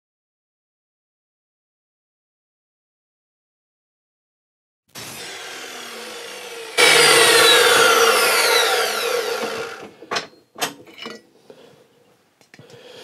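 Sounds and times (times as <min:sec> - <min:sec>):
chop saw cutting metal: 0:05.0 - 0:10.0.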